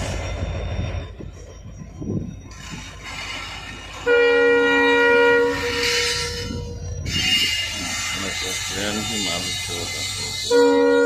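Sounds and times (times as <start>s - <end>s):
low rumble of moving train: 0.0s - 11.0s
train horn blast: 4.0s - 9.2s, 10.0s - 11.0s.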